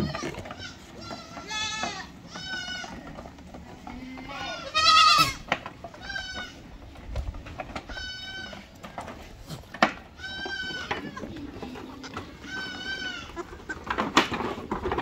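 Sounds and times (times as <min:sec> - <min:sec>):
goat kids bleating: 0:00.0 - 0:07.0, 0:07.7 - 0:14.6.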